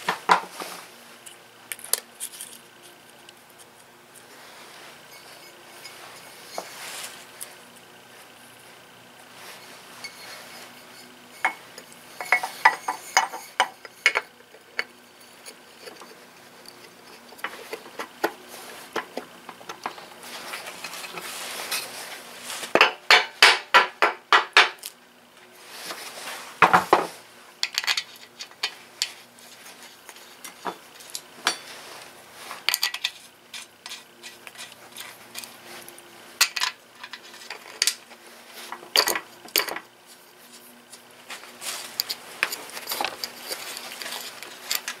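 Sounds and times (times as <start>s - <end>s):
metal tools clanking: 9.6s - 18.2s.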